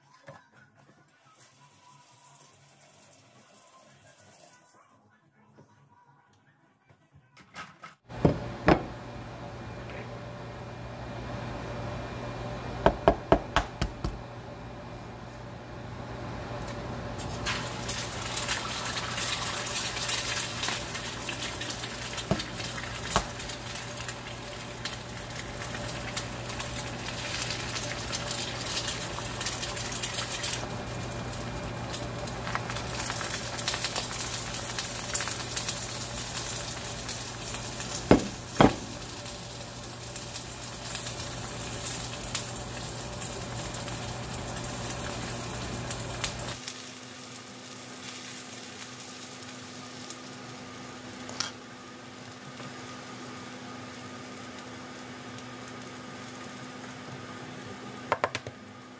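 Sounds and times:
spinach sizzling in frying pan: 17.2s - 57.6s.

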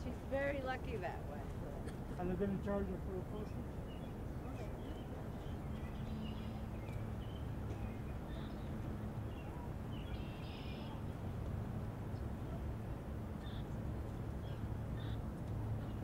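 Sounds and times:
steady low hum: 0.0s - 16.0s
small birds chirping: 3.4s - 11.0s, 13.4s - 16.0s.

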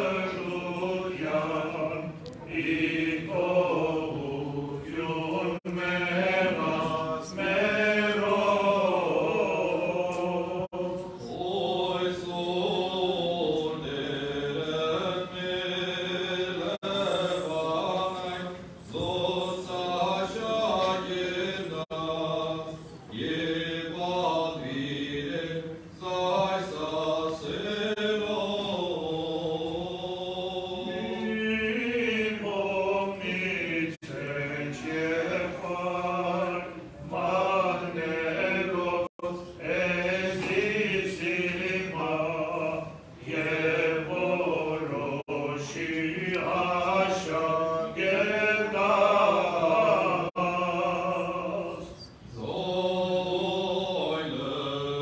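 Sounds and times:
men chanting: 0.0s - 55.0s.

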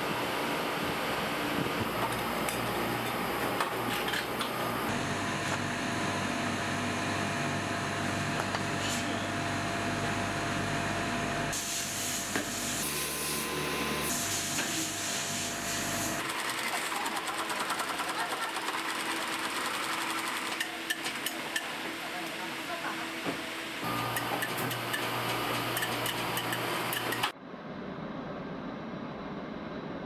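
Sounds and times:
factory machinery hum: 0.0s - 30.0s
sewing machine stitching: 16.2s - 21.6s, 23.9s - 27.3s.

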